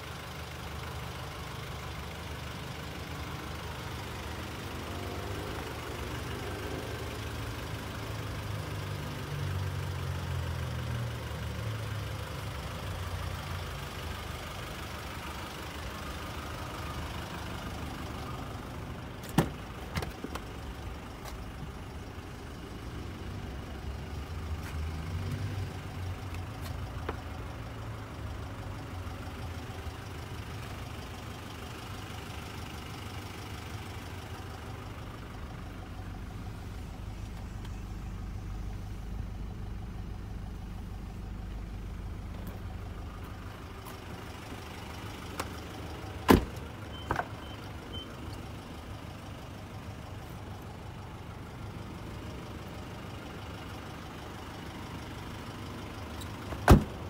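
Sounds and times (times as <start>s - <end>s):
car engine idling: 0.0s - 57.0s
car door clicks: 19.2s - 20.4s, 46.3s - 47.3s, 56.5s - 57.0s.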